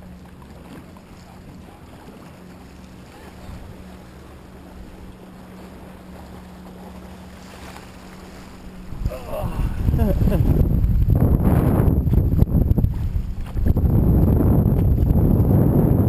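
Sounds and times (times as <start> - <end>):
water current rushing: 0.0 - 16.0
wind buffeting microphone: 8.0 - 16.0.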